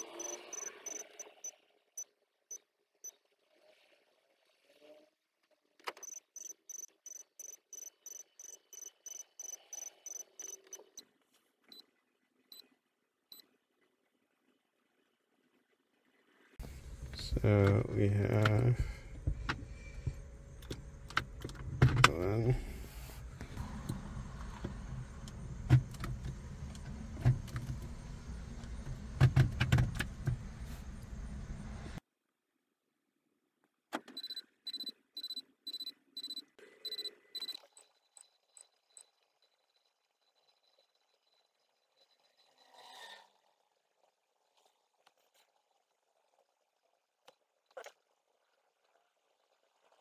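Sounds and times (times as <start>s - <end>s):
electronic beeps: 0.0s - 1.5s, 6.0s - 11.0s, 34.2s - 39.1s
low steady hum: 16.6s - 32.0s.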